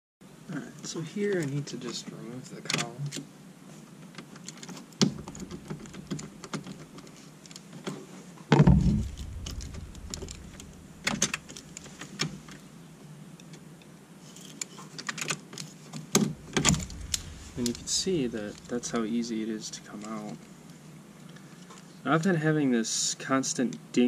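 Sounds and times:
loud thump: 8.5s - 11.8s, 16.2s - 19.5s.

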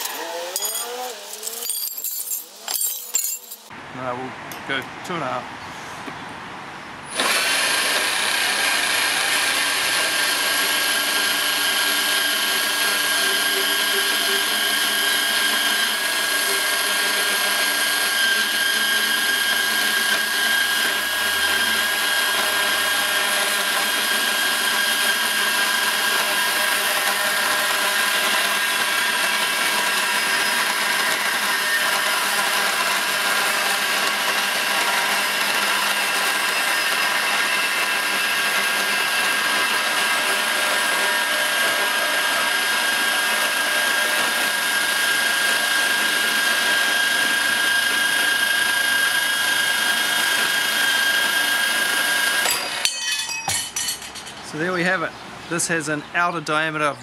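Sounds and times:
bandsaw cutting steel pipe: 0.0s - 3.7s, 7.1s - 54.7s.

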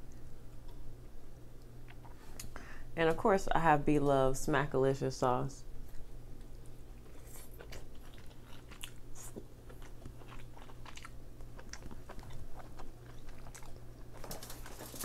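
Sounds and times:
close-miked chewing: 5.8s - 15.0s.

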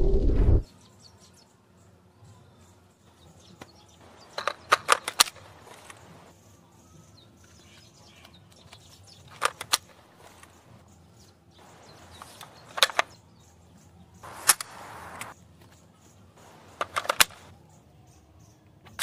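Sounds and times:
paper model magazine clicks: 4.2s - 6.1s, 8.2s - 10.6s, 12.1s - 13.2s, 14.3s - 15.4s, 16.6s - 17.5s.

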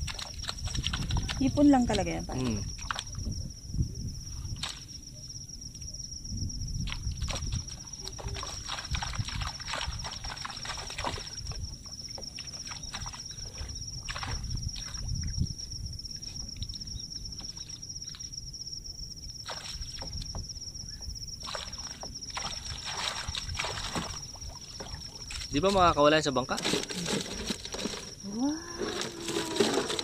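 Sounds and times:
water splashing and dripping: 0.0s - 3.3s, 6.8s - 15.3s, 19.4s - 20.4s, 21.4s - 25.9s.

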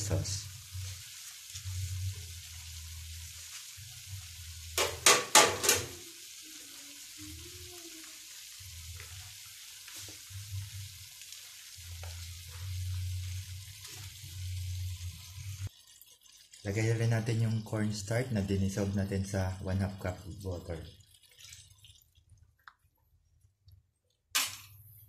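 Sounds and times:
vegetables sizzling in a wok: 0.0s - 16.0s.

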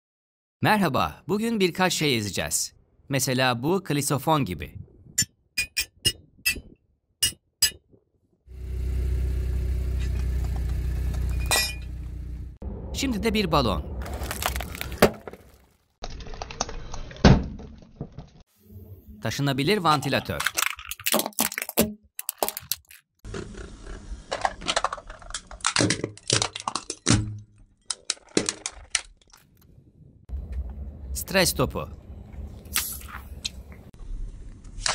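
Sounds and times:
car engine running: 8.5s - 13.0s
low rumble: 11.2s - 15.0s, 29.8s - 34.7s
plastic fans crunching under tyre: 14.0s - 15.7s.

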